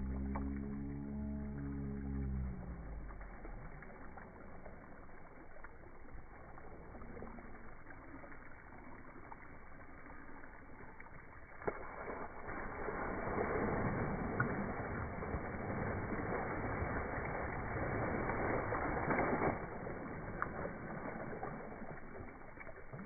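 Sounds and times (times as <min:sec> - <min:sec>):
child sliding with splashing: 0:12.0 - 0:22.0.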